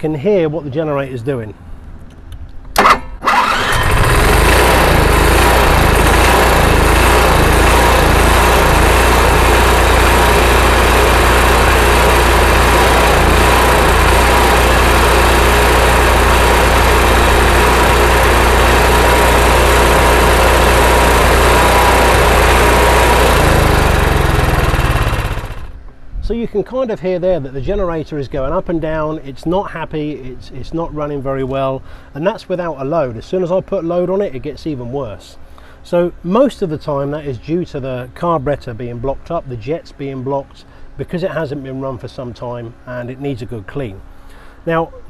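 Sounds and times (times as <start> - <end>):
generator engine surging: 2.8 - 25.8.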